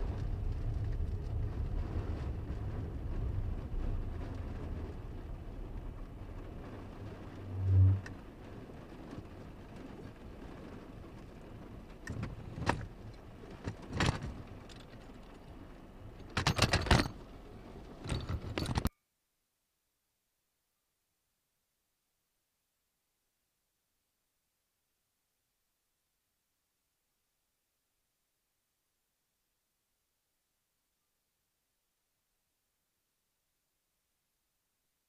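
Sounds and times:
moving car rumble: 0.0 - 18.9
rain on windshield: 0.0 - 18.9
sharp knocks and rattles: 16.2 - 17.3, 17.9 - 18.9.

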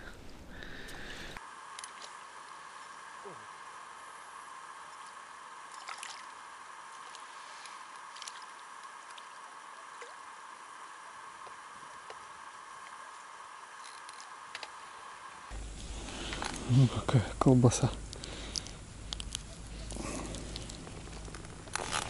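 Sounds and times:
faint hiss: 0.0 - 22.0
light wet clicks: 17.8 - 20.8.

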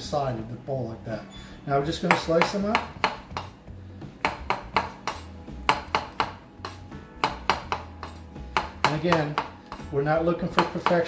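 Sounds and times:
knife chopping on wooden board: 2.0 - 3.6, 4.2 - 11.0.

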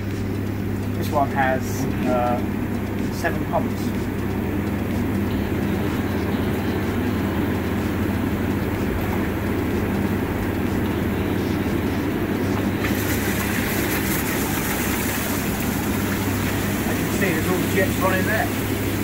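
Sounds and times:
pump humming: 0.0 - 19.0
water rushing through jets: 12.8 - 19.0.

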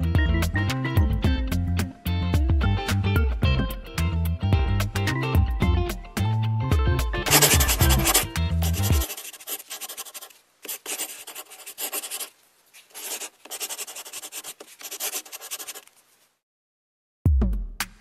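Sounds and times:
marker drawn across paper: 7.3 - 16.0.

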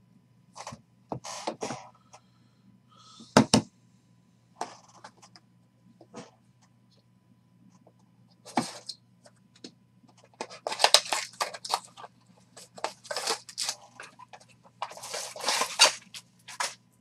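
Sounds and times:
wrappers torn open crackling: 10.6 - 12.0, 12.8 - 14.1, 14.8 - 16.8.

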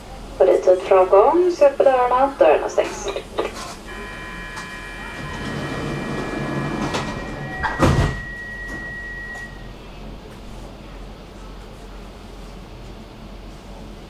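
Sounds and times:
sliding doors running shut: 3.8 - 9.8
door-closing warning tone: 3.9 - 10.0
doors closing thump: 4.6 - 9.5.

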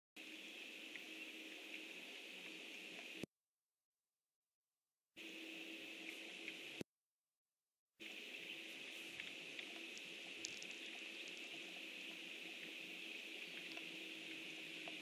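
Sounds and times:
continuous high-pitched hiss: 0.2 - 3.3, 5.2 - 6.8, 8.0 - 15.0
faint ticks: 8.0 - 15.0.

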